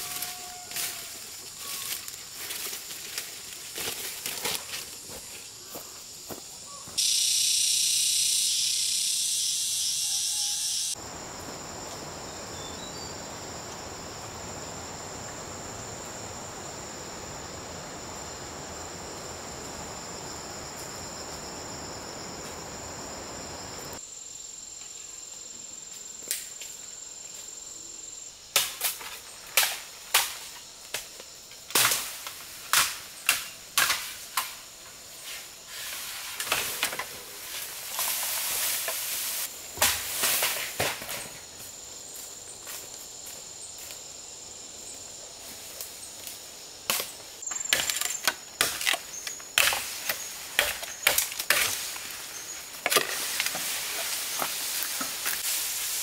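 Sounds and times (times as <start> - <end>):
insect drone: 0.0 - 56.0
loud high hiss: 7.0 - 12.6.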